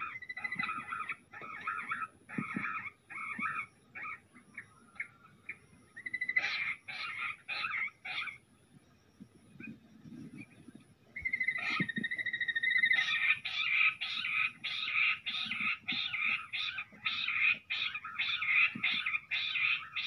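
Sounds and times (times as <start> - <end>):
quail calling: 0.0 - 8.4, 11.2 - 20.0.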